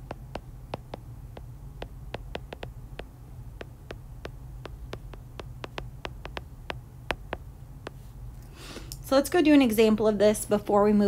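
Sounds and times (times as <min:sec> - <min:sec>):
stylus clicking on glass screen: 0:00.0 - 0:07.4
low steady hum: 0:00.0 - 0:11.0.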